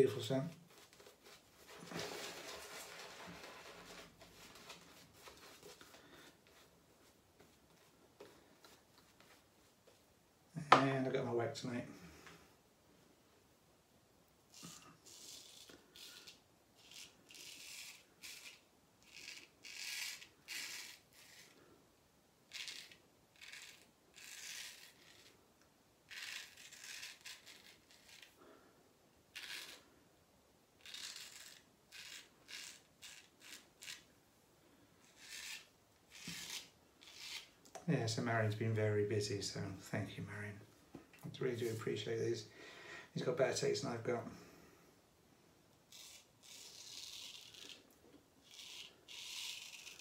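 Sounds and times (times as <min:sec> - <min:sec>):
straight razor scraping stubble: 0:14.5 - 0:21.6, 0:22.5 - 0:25.4, 0:26.1 - 0:28.4, 0:29.3 - 0:29.8, 0:30.8 - 0:34.1, 0:35.0 - 0:37.6, 0:45.9 - 0:50.0.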